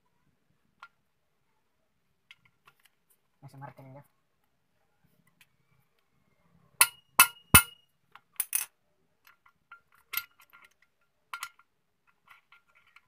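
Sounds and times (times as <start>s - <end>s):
metal parts clinking and tapping: 6.8s - 7.8s, 8.4s - 13.0s.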